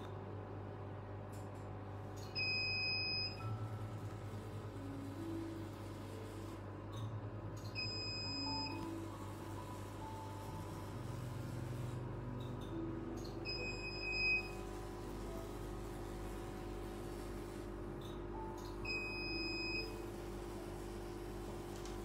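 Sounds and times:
steady low hum: 0.0s - 22.0s
machine high beeps: 2.2s - 4.4s, 7.6s - 16.2s, 17.1s - 20.9s.

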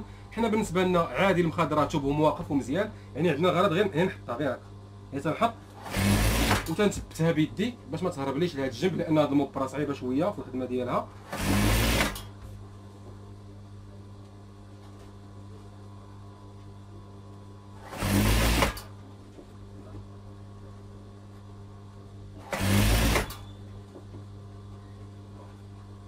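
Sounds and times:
steady low hum: 0.0s - 26.0s
sewing machine stitching: 5.8s - 6.7s, 11.2s - 12.3s, 17.8s - 18.9s, 22.4s - 23.5s.

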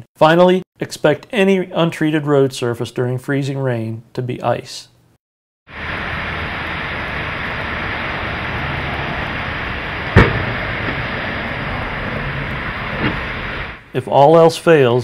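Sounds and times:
traffic hiss on wet road: 5.7s - 13.8s
cars crashing: 5.9s - 13.6s.

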